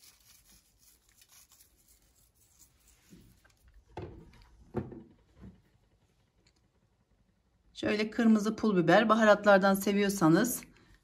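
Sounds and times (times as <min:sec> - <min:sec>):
soft rubbing: 0:00.0 - 0:03.8.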